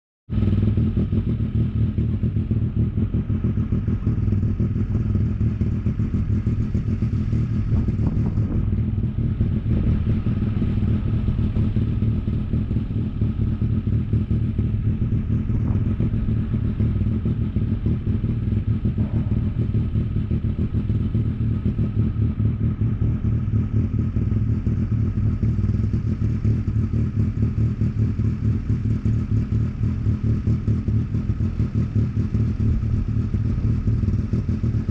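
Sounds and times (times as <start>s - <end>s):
engine running steadily: 0.3s - 34.9s.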